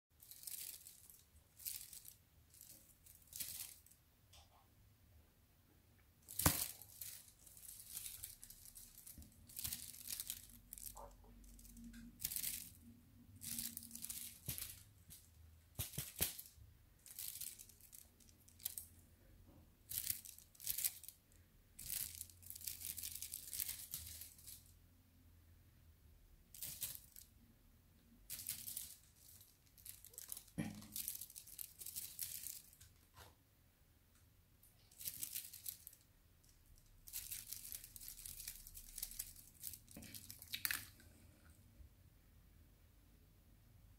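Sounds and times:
crinkling rustling noises: 0.1 - 4.6, 6.2 - 19.1, 19.8 - 24.8, 26.5 - 27.4, 28.2 - 33.4, 34.6 - 41.3.

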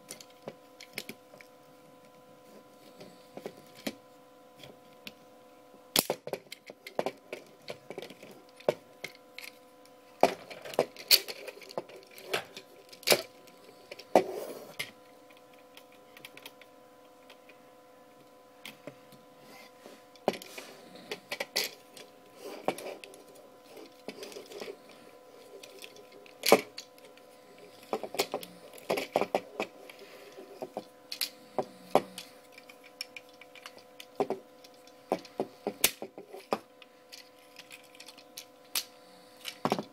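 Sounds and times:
plastic toy parts clicking: 10.2 - 14.1, 14.7 - 17.6, 25.4 - 27.2, 30.8 - 31.3, 32.0 - 39.9.

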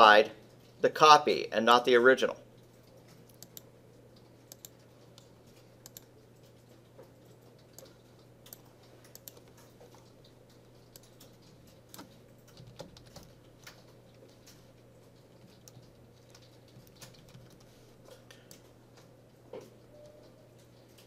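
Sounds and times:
faint low hum: 0.0 - 21.0
keyboard keystrokes: 7.6 - 17.7.

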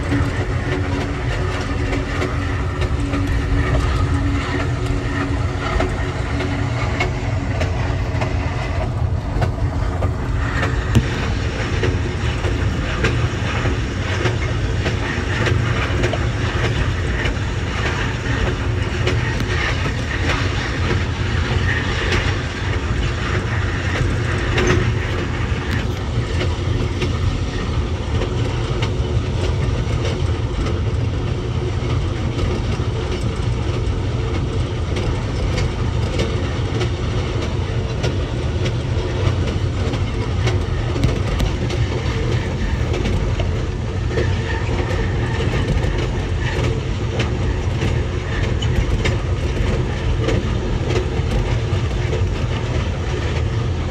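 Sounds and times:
train wheels rumbling on rail: 0.0 - 53.9.

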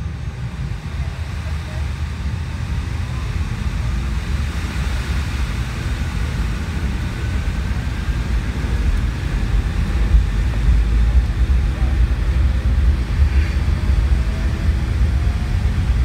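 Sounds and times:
airliner low rumble: 0.0 - 16.0
faint engine whine: 0.0 - 16.0.

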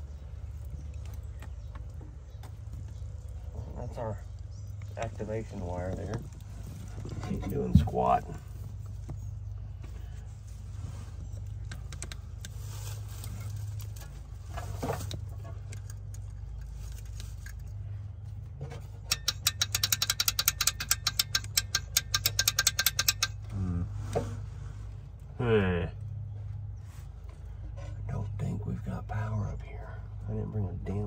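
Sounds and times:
steady low hum: 0.0 - 31.0
rapid sharp metallic clicks: 19.1 - 23.4.

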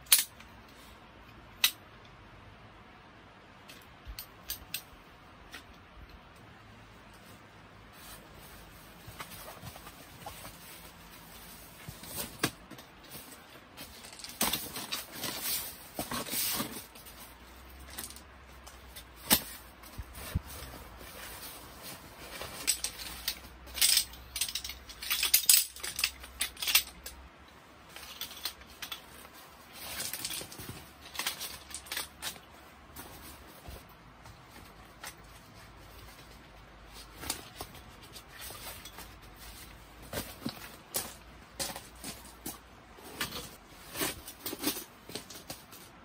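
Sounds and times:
metal poles clicking together: 0.0 - 0.5, 3.7 - 6.2, 22.4 - 27.2
fabric rustling: 6.8 - 27.0.

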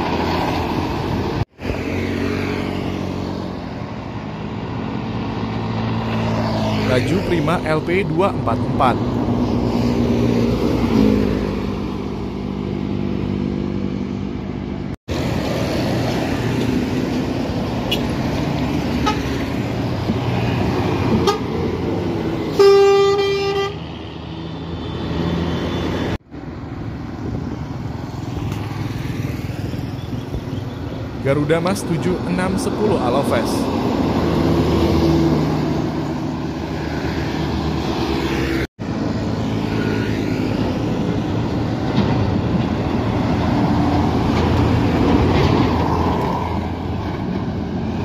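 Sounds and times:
engine and tyre noise: 0.0 - 48.0
vehicle horn toot: 19.0 - 19.3, 21.2 - 21.5, 22.5 - 23.8.

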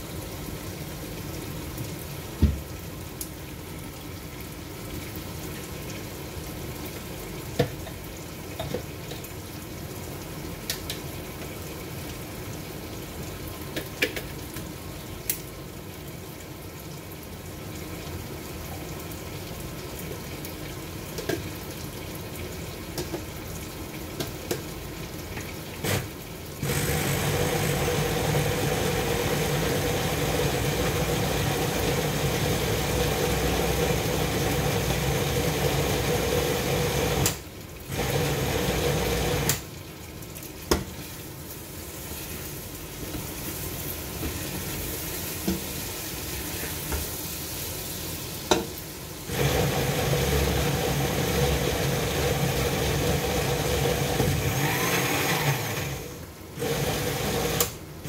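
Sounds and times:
pot bubbling on hob: 4.2 - 56.8
appliance motor humming: 25.8 - 39.6, 49.3 - 57.8.

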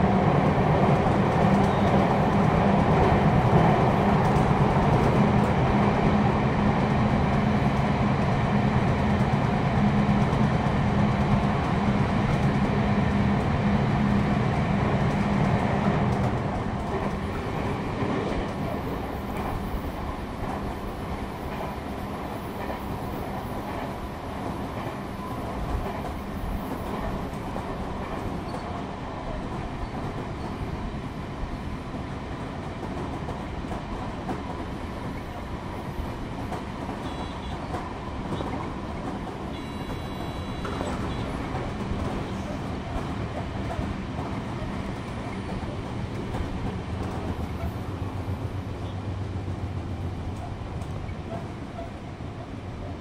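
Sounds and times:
rail joint clickety-clack: 0.0 - 53.0
train wheels rumbling on rails: 0.0 - 53.0.

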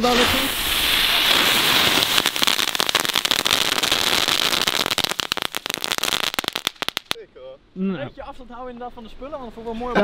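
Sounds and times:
crackling fireworks: 0.0 - 7.2.

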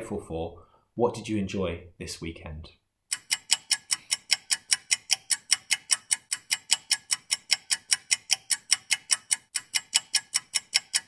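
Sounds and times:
rapid even ticking: 3.1 - 11.0.

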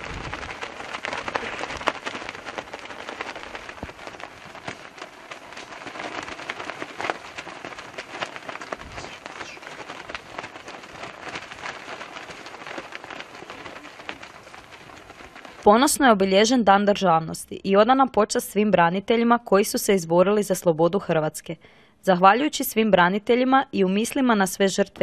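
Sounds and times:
light rain pattering: 0.0 - 16.5.

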